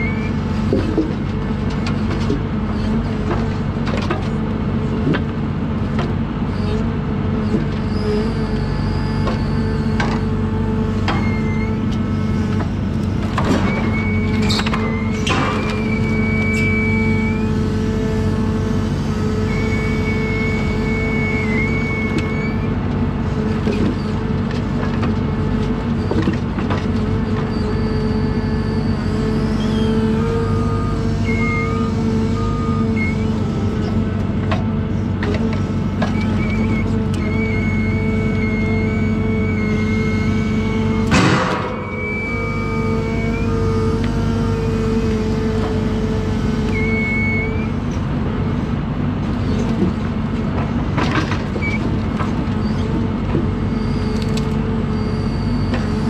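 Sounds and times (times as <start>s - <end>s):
diesel engine running: 0.0s - 56.0s
high whine: 35.6s - 48.7s.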